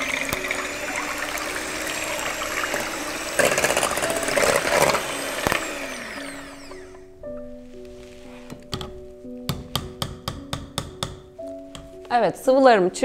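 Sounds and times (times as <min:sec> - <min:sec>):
electric hand mixer whisking: 0:00.0 - 0:07.2.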